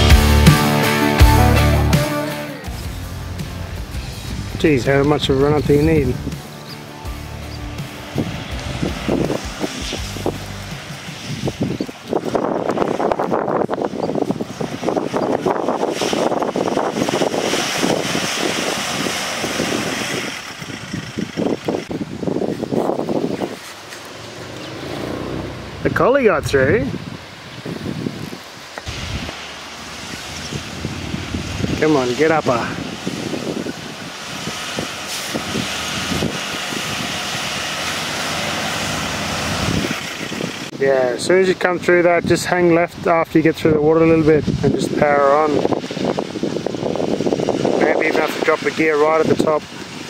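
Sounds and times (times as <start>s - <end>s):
car engine climbing: 0.0s - 50.0s
wind buffeting microphone: 2.7s - 6.5s, 7.3s - 50.0s
tyres spinning in sand: 8.6s - 24.5s.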